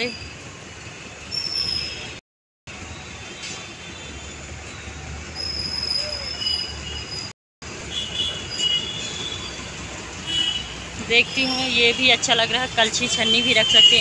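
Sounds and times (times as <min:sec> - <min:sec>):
high squealing tones: 0:05.3 - 0:07.3.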